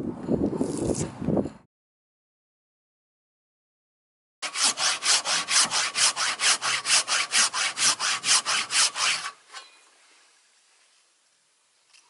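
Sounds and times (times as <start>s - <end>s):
hand saw rasping through wood: 4.4s - 9.4s.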